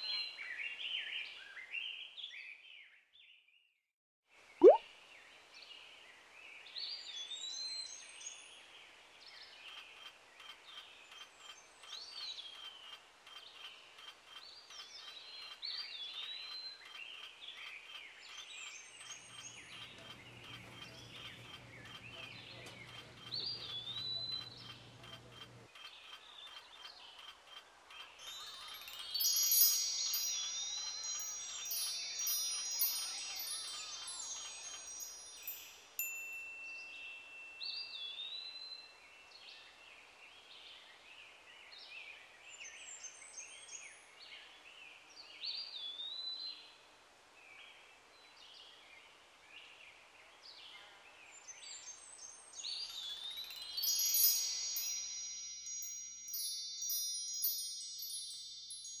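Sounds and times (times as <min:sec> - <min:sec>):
soft background hiss: 0:04.6 - 0:59.0
high birdlike chirps: 0:28.0 - 0:35.8
wind chimes tinkling: 0:28.0 - 0:38.0, 0:52.4 - 0:59.0.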